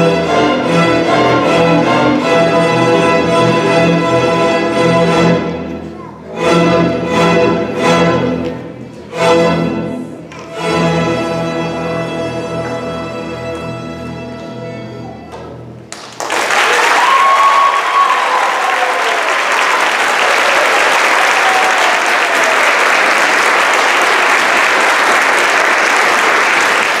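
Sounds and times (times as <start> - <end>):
audience applause: 15.9 - 27.0
audience cheering: 16.2 - 27.0.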